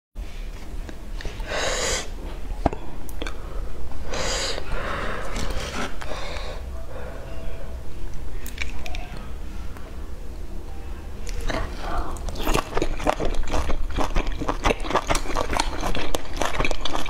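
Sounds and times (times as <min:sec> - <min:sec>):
person blowing breath: 0:01.4 - 0:02.2, 0:04.0 - 0:06.7.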